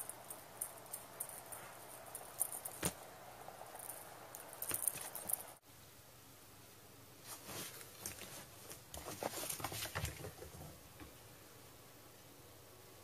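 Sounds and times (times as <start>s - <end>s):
faint steady hiss: 0.0s - 13.0s
cat scratching on fabric: 7.3s - 10.5s.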